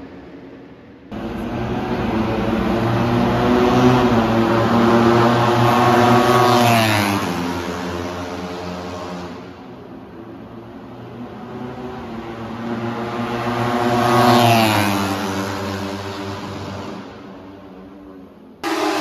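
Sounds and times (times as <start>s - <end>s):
race motorcycle passing at speed: 1.1s - 9.6s, 11.3s - 17.4s, 18.6s - 19.0s.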